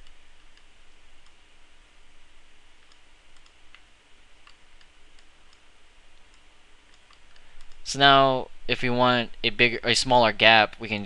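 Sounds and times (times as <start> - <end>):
computer mouse clicks: 0.0 - 1.4, 2.8 - 7.8
low recording hiss: 0.0 - 11.0.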